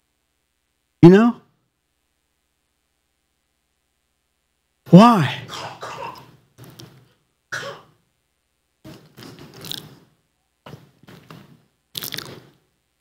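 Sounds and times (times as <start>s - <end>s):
man clearing his throat: 5.2s - 6.4s, 7.6s - 8.0s.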